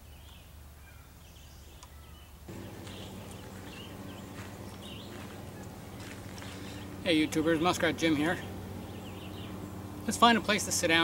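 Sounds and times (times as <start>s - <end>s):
songbirds chirping: 0.0s - 11.0s
steady low hum: 2.5s - 11.0s.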